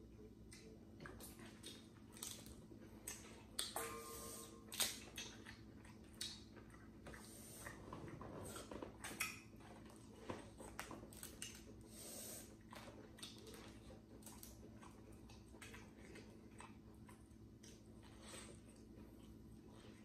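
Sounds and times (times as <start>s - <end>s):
faint steady hum: 0.0s - 20.0s
corn on the cob being chewed: 4.7s - 20.0s.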